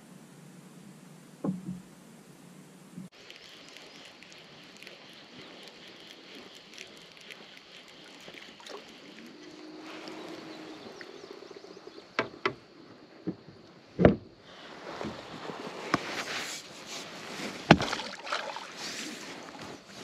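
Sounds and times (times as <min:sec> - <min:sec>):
kayak paddle splashing: 0:03.1 - 0:12.2, 0:14.5 - 0:20.0
beaver tail slapping water: 0:03.2 - 0:11.0, 0:17.6 - 0:19.6.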